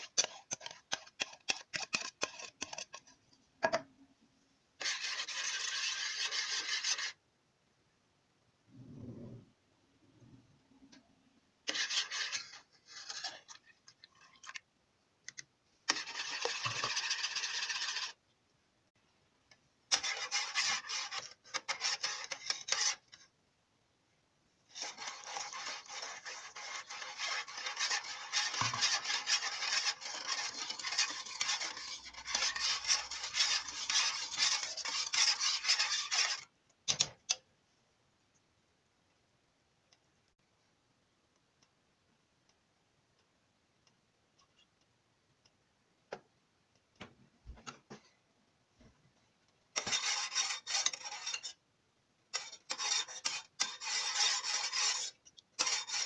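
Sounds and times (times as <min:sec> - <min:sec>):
metal spoon scraping a pot: 0:00.0 - 0:03.2, 0:04.8 - 0:07.2, 0:11.7 - 0:14.6, 0:15.9 - 0:18.2, 0:19.9 - 0:23.2, 0:24.7 - 0:36.5, 0:49.8 - 0:51.6, 0:52.3 - 0:56.0.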